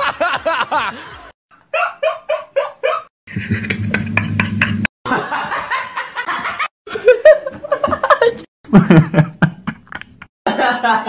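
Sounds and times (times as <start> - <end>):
person laughing: 2.9 - 11.0.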